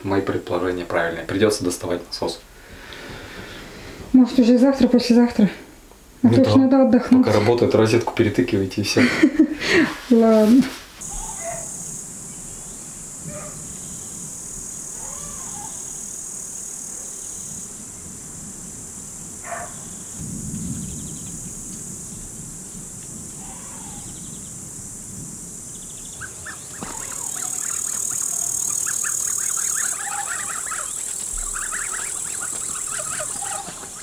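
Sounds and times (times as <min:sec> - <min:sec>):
insects chirring: 0:00.0 - 0:34.0
geese gabbling: 0:11.0 - 0:11.8, 0:14.9 - 0:16.0, 0:26.1 - 0:34.0
short bird calls: 0:11.0 - 0:11.8, 0:15.0 - 0:15.9, 0:26.1 - 0:34.0.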